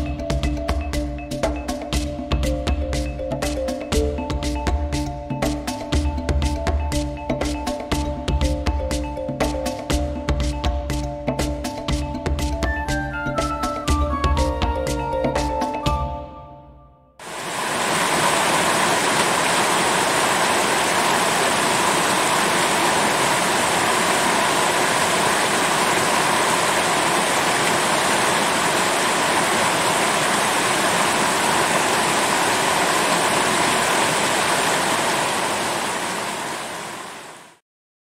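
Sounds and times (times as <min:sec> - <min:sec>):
river water rushing over boulders: 0:17.2 - 0:37.6.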